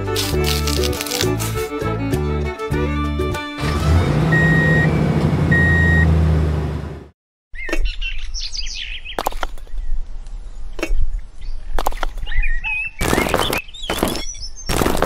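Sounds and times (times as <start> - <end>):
truck engine hum: 0.0 - 7.1
toy bricks clicking: 0.1 - 1.6
reversing beep: 4.3 - 6.2
birds chirping: 7.6 - 14.9.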